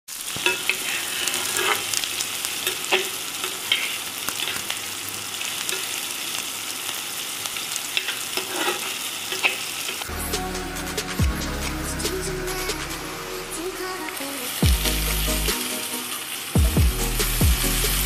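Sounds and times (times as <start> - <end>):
onions sizzling in hot oil: 0.1 - 10.2, 14.1 - 18.0
spatula scraping pan: 0.4 - 2.0, 8.0 - 9.6.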